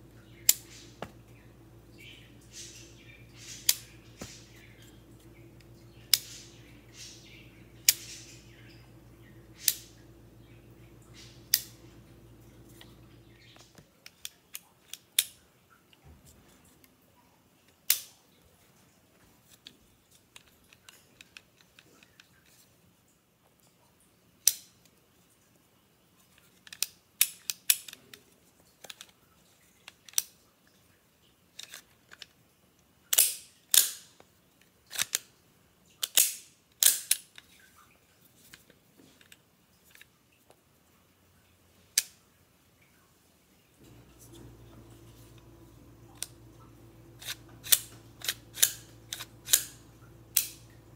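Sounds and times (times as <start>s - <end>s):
selector switch clicking: 43.9s - 50.9s.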